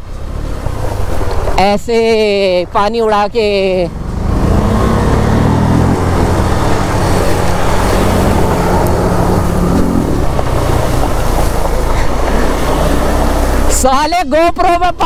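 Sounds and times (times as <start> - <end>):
motorcycle engine revving: 3.4 - 13.9
water splashing: 4.5 - 13.8.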